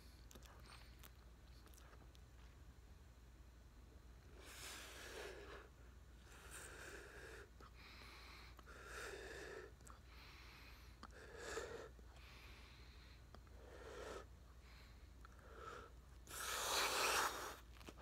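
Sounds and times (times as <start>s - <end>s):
slow nasal breathing: 4.4s - 17.6s.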